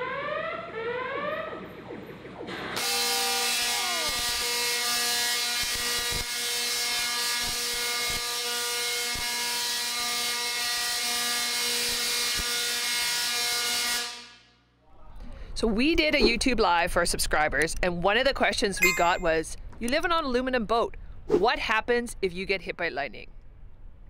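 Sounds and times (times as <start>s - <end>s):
tesla coil electric buzz: 2.4s - 13.7s
electric arc cracks: 2.8s - 8.4s
rising whoop tone: 3.1s - 4.4s.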